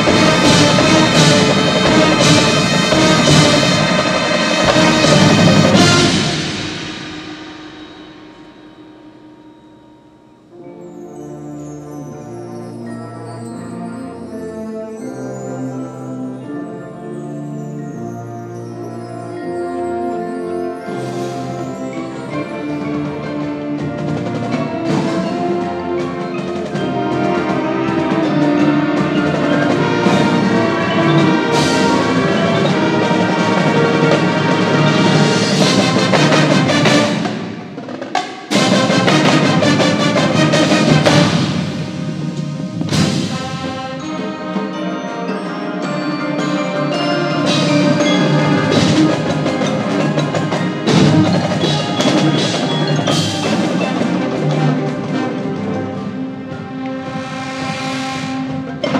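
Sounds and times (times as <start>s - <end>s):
marching band playing: 0.0s - 58.9s
marimbas and mallet percussion: 0.0s - 58.9s
sharp percussion accents: 0.0s - 58.9s.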